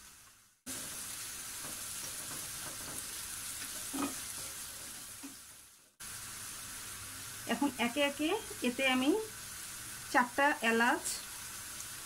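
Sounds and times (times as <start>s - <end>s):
onions sizzling in frying pan: 0.0s - 12.0s
spatula scraping pan: 0.7s - 5.5s.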